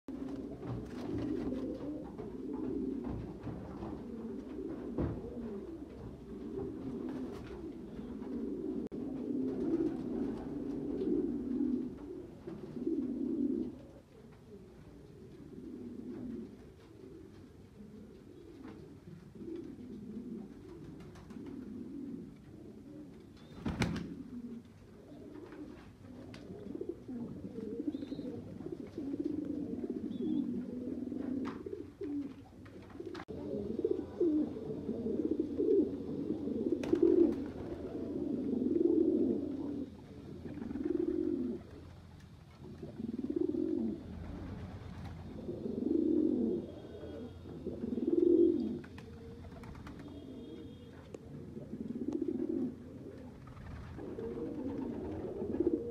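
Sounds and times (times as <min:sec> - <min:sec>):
pigeons cooing: 0:00.1 - 0:55.9.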